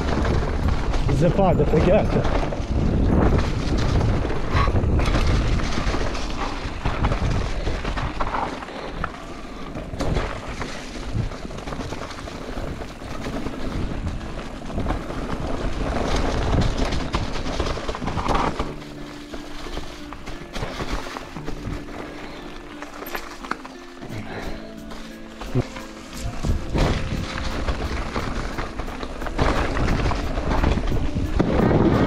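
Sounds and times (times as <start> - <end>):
wind buffeting microphone: 0.0 - 9.1, 26.2 - 32.0
bike knocking over bumps: 0.0 - 32.0
bike tyre noise on trail: 0.0 - 32.0.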